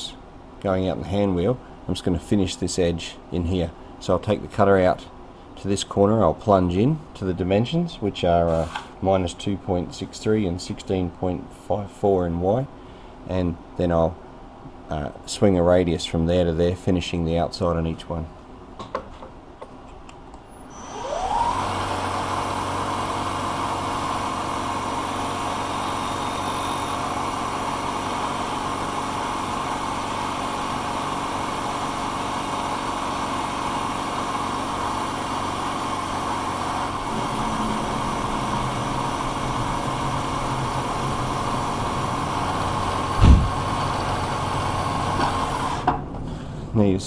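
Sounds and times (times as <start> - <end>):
milling machine spindle whine: 20.5 - 45.9
end mill cutting brass: 21.0 - 45.9.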